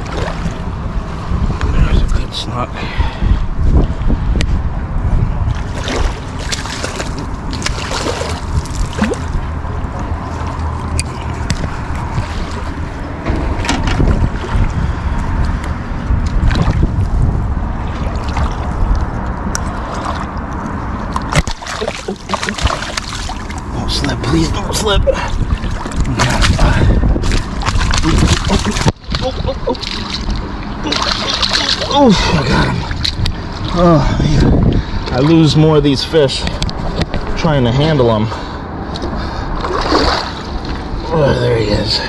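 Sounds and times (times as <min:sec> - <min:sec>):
fish splashing and thrashing: 0:00.0 - 0:01.3, 0:05.4 - 0:35.4, 0:38.7 - 0:41.1
wind on microphone: 0:00.0 - 0:21.6, 0:22.2 - 0:37.6
lapping water: 0:05.5 - 0:13.0, 0:17.8 - 0:35.6, 0:38.3 - 0:41.1.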